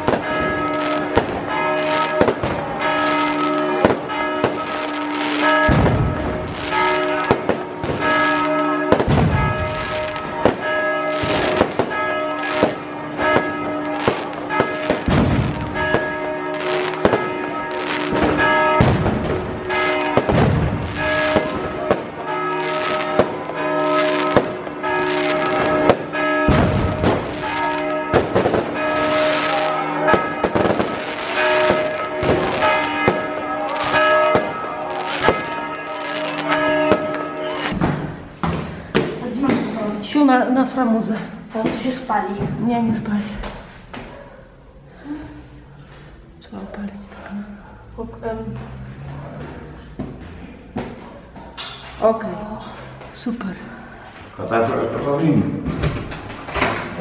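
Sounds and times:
church bells ringing: 0.0 - 43.4
firecrackers banging: 0.0 - 43.8, 47.8 - 57.0
fireworks booming: 0.0 - 43.8.

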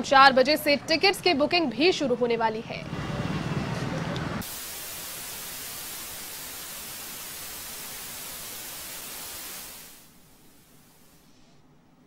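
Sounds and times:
static-like hiss: 4.4 - 12.0.

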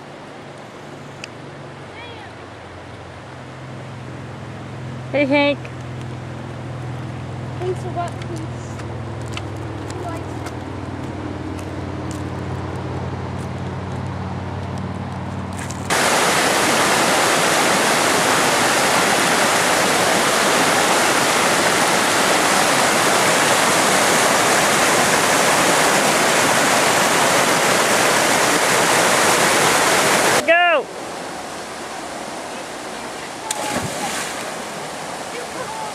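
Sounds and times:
river rapids rushing over rocks: 15.9 - 35.9.

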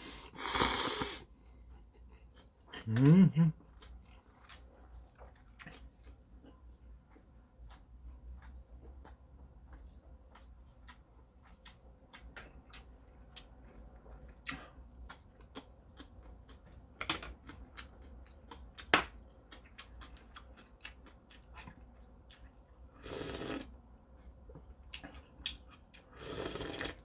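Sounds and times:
chewing and mouth clicks: 2.0 - 22.9, 24.0 - 27.0
noodle slurp: 23.0 - 23.7, 26.1 - 27.0.

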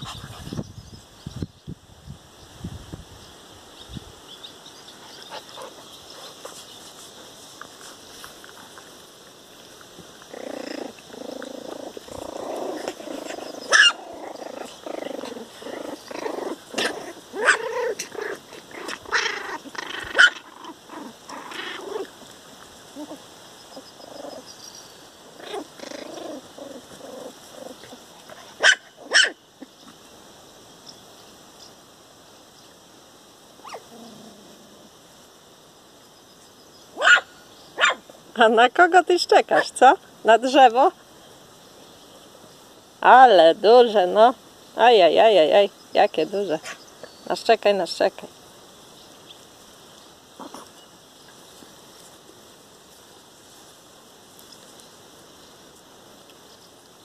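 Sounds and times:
puppies play-growling and yipping: 0.0 - 0.6, 5.0 - 7.2, 10.0 - 29.9, 33.6 - 34.9, 50.0 - 52.1
puppy yelps: 13.4 - 14.0, 16.8 - 18.1, 18.8 - 20.8, 28.6 - 29.4, 33.6 - 33.8, 37.0 - 38.0
sharp puppy yaps: 13.7 - 14.0, 20.2 - 20.4, 28.6 - 29.4, 33.6 - 33.8, 37.0 - 38.0.

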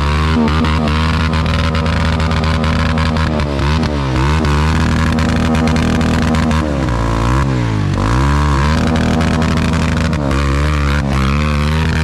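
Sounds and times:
knocks and clatter: 0.0 - 7.2
motorcycle engine revving: 0.0 - 12.0.

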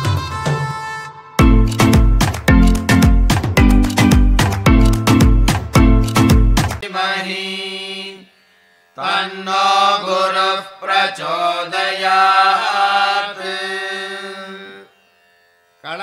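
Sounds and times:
bass-heavy music: 0.0 - 6.8
person chanting a mantra: 6.8 - 8.3, 9.0 - 14.9.

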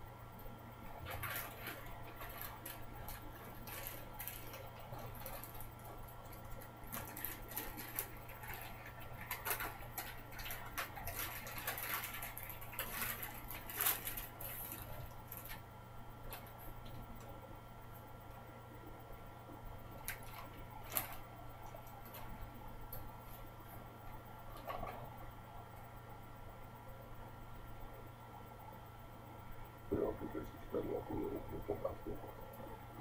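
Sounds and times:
low steady hum: 0.0 - 33.0
plastic packaging crinkling: 1.0 - 15.6, 20.0 - 22.4.

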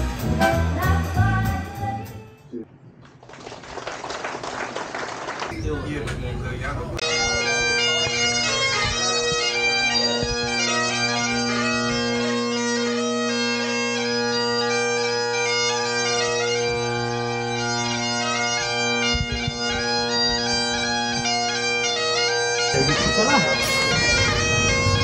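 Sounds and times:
bagpipes playing: 7.0 - 25.0.

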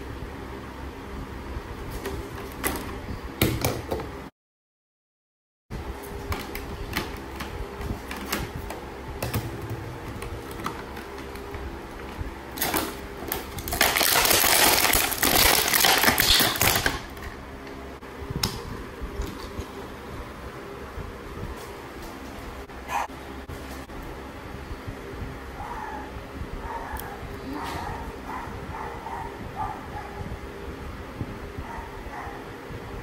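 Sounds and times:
plastic bag crinkling: 12.6 - 17.1.

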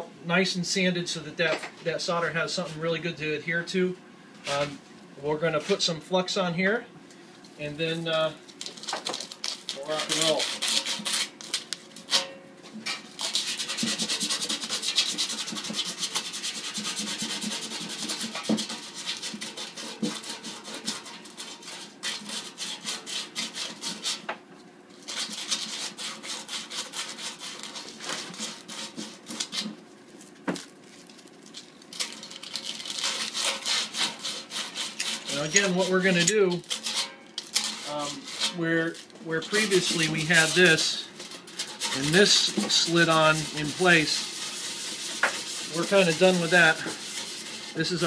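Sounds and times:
sandpaper scrubbing on metal: 9.7 - 11.7, 13.2 - 24.3, 25.0 - 29.8, 32.0 - 48.0.

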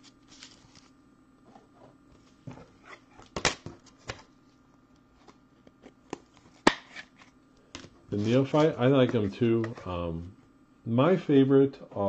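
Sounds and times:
cards and paper clicking and rustling: 0.3 - 0.9.

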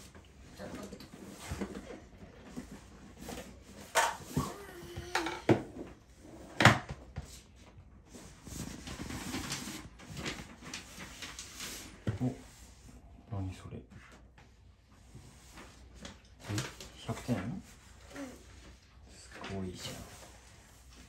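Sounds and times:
rustling of folder and papers: 0.0 - 4.0, 6.9 - 13.1, 13.8 - 21.0.

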